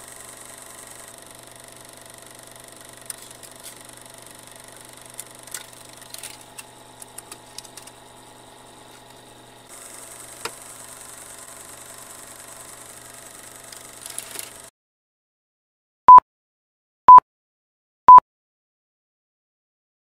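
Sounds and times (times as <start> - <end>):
film projector whirring: 0.0 - 14.7.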